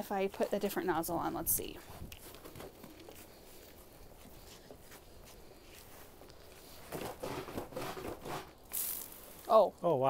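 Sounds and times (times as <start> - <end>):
footsteps: 0.2 - 9.5
faint clicking and handling: 2.0 - 6.7.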